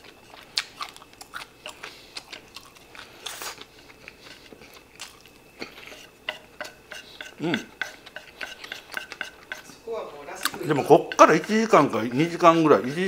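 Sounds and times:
chewing rice: 0.0 - 9.8
chopsticks tapping a wooden plate: 5.8 - 9.7, 10.4 - 13.0.

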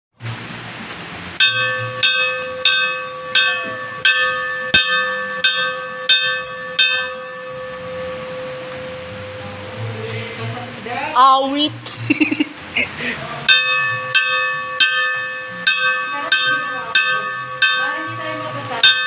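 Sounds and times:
bell ringing: 1.4 - 10.1, 13.5 - 19.0.

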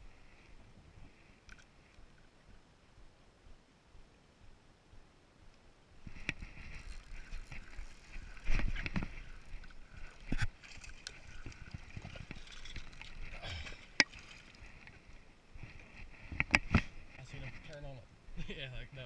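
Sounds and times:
handling noise on a boat: 6.0 - 17.8
water sloshing: 6.1 - 15.2.

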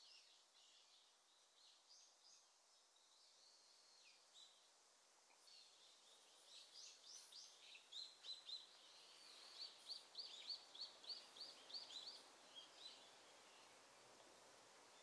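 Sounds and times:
outdoor hiss: 0.0 - 15.0
small bird chirping: 5.3 - 13.8.

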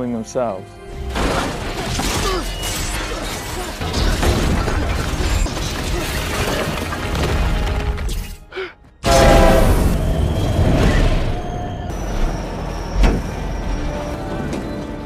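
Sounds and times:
action film music: 0.0 - 15.0
crashing and booming effects: 9.0 - 13.4.

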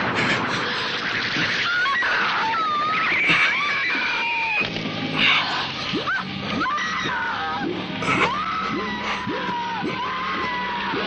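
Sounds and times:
woman screaming: 1.6 - 4.6, 6.0 - 11.0.

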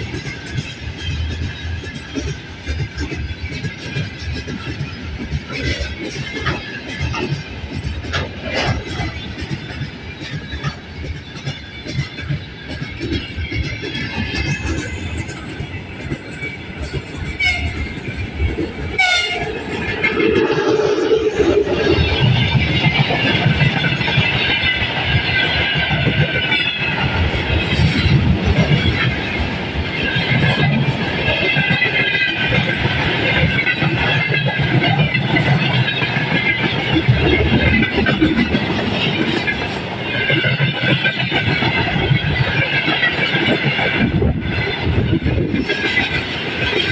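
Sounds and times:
freight train wheels rumbling: 0.0 - 46.9.

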